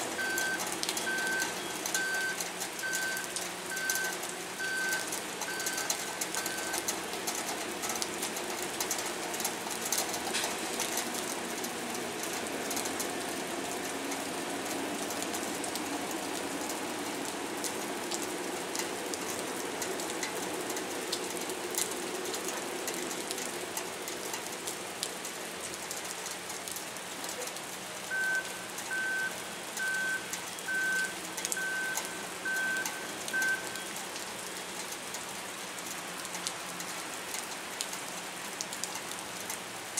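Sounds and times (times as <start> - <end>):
steady rain falling: 0.0 - 39.9
reversing alarm beeping: 0.2 - 6.9, 28.1 - 33.9.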